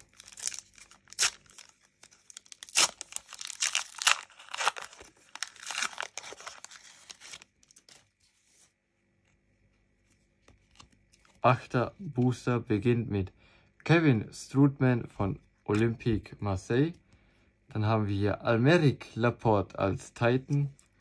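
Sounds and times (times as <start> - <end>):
foil wrapper tearing and crinkling: 0.0 - 8.1.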